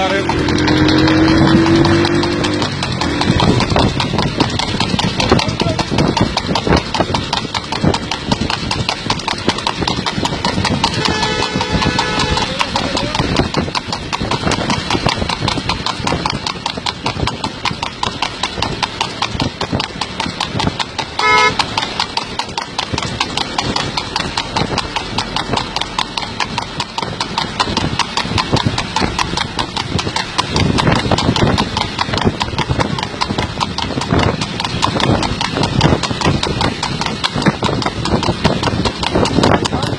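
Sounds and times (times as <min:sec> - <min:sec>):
horse hooves clip-clopping on pavement: 0:00.0 - 0:39.9
motorcycle engines running: 0:00.0 - 0:39.9
vehicle horn: 0:10.9 - 0:12.8, 0:21.2 - 0:21.7.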